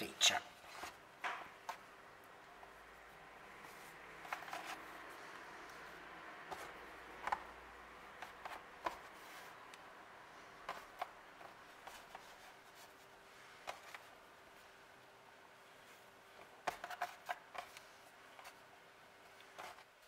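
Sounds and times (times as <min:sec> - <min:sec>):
faint steady hum: 0:00.0 - 0:20.0
hands tapping and rubbing dough: 0:05.7 - 0:09.9, 0:10.6 - 0:14.2, 0:16.3 - 0:20.0.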